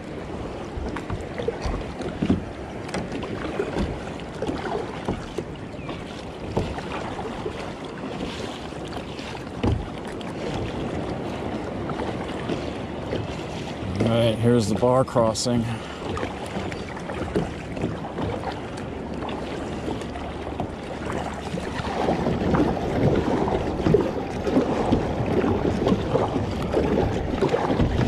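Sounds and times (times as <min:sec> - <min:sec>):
paddle strokes splashing: 0:00.0 - 0:28.0
water lapping at hull: 0:00.0 - 0:28.0
wind on microphone: 0:15.8 - 0:28.0.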